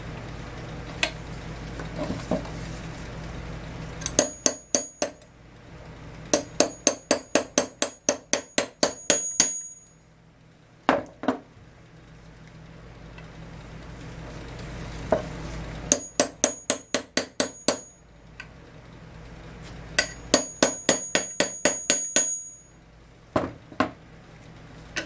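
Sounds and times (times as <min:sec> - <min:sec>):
hammer striking steel punch: 0:04.0 - 0:05.2, 0:06.4 - 0:09.8, 0:15.9 - 0:17.9, 0:20.0 - 0:22.6.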